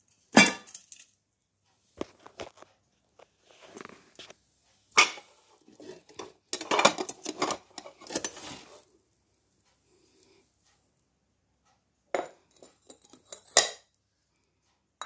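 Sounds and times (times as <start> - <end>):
plates and bowls clinking: 0.3 - 0.9, 4.9 - 8.7, 12.2 - 13.9.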